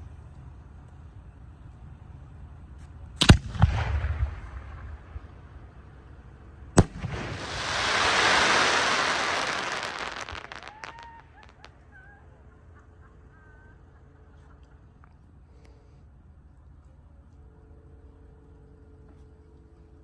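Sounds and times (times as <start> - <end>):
firework burst: 6.8 - 11.7
firework crackling: 6.8 - 11.8.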